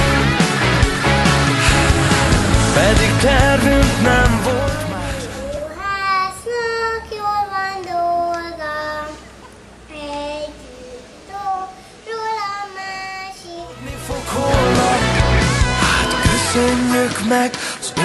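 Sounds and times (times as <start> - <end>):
band with guitars: 0.0 - 5.8, 13.8 - 18.0
pop vocal singing held notes: 1.5 - 8.6, 13.7 - 18.0.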